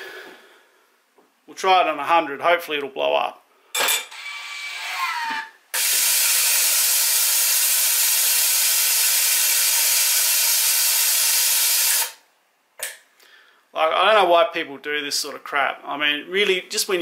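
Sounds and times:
vacuum tester hissing: 4.6 - 12.2.

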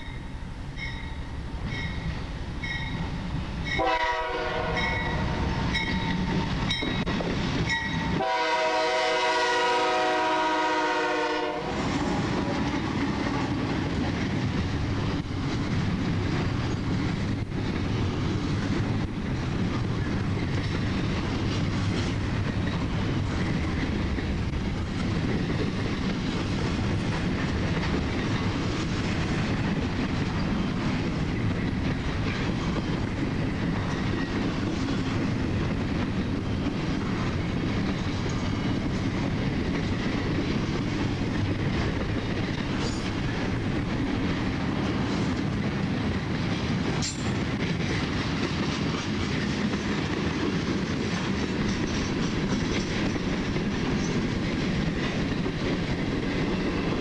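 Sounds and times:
train wheels knocking: 1.6 - 57.0
locomotive horn blasts: 3.7 - 5.9, 7.8 - 11.8.

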